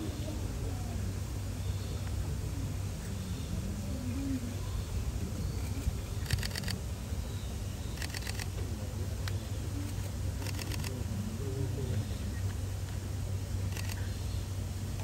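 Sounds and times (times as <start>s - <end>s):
faint background voices: 0.0s - 14.2s
camera shutter clicking: 6.2s - 6.8s, 8.0s - 8.5s, 10.4s - 10.9s.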